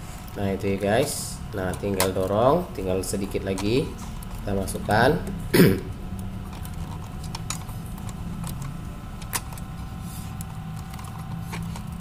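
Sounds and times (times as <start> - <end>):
steady low hum: 0.0 - 12.0
plastic and metal parts clicking: 3.2 - 5.4, 6.2 - 9.7, 10.4 - 12.0.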